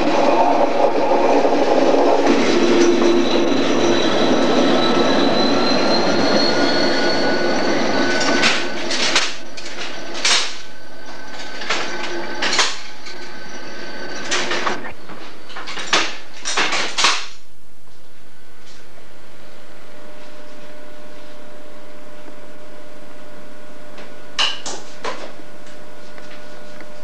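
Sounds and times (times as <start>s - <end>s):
faint rising whine: 0.0s - 15.6s.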